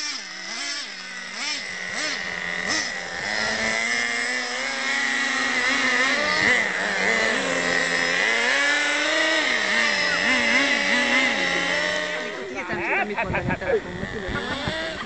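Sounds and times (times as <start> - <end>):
small engine revving: 0.0 - 15.0.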